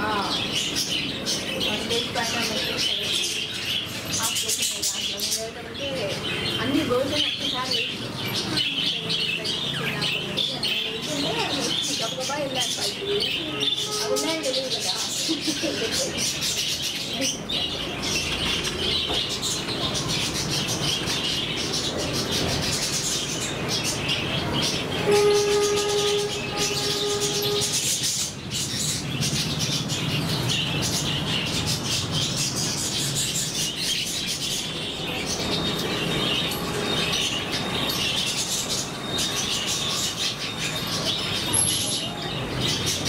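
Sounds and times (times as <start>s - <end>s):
budgerigars chattering: 0.0s - 43.0s
horn-like tone: 25.0s - 27.8s.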